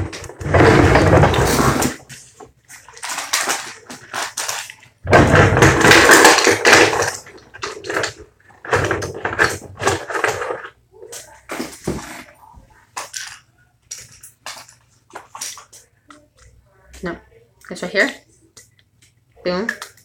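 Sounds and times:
items rattling in a drawer: 0.0 - 12.4.

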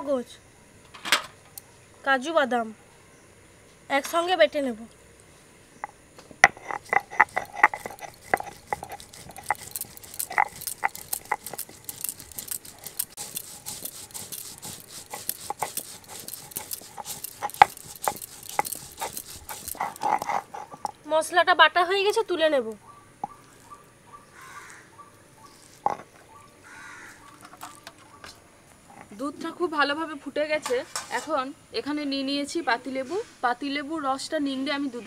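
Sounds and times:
gritty scraping: 5.8 - 22.4, 23.2 - 29.3
grinding knocks and clicks: 6.2 - 21.0, 25.8 - 26.3.

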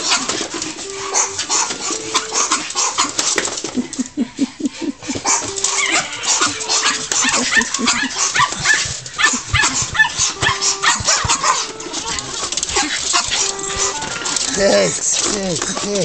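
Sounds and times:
small dogs barking and whining: 0.0 - 4.0, 5.0 - 16.0.

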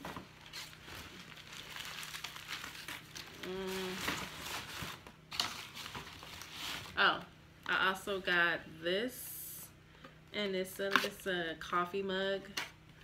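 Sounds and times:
paper rustling and crinkling: 0.0 - 7.0
woman humming: 3.4 - 4.2.

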